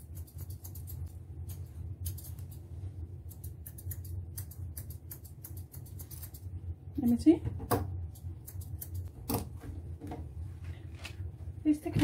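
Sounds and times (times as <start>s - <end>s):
steady low hum: 0.0s - 12.0s
thinning shears snipping fur: 3.3s - 6.4s.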